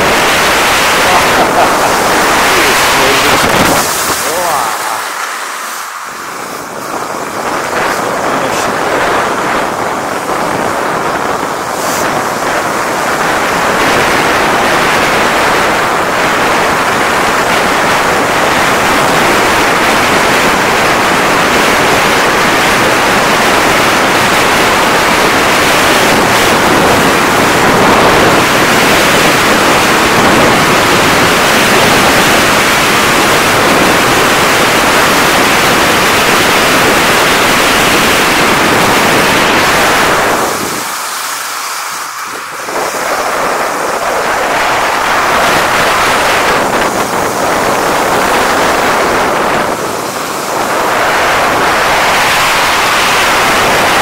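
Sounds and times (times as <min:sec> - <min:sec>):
wind rushing over microphone: 0:00.0 - 0:54.0
gliding across snowy ice: 0:00.1 - 0:11.0.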